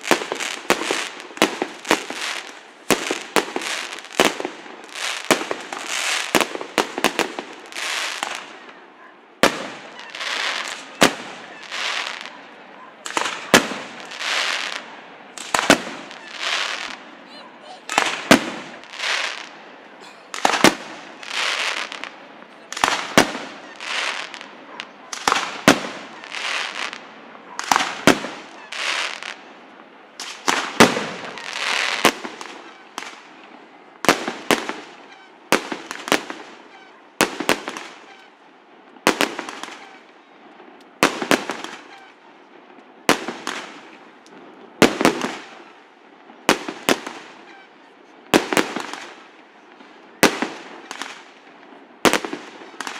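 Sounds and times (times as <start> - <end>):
firework bangs: 0.0 - 8.8, 9.4 - 29.5, 30.2 - 38.4, 39.0 - 52.9
firework hissing: 13.1 - 17.1, 17.8 - 19.5.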